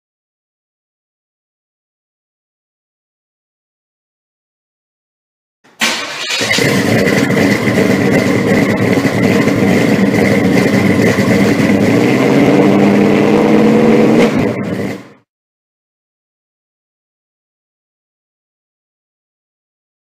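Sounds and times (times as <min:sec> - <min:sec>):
vehicle engine running: 0:05.8 - 0:15.3.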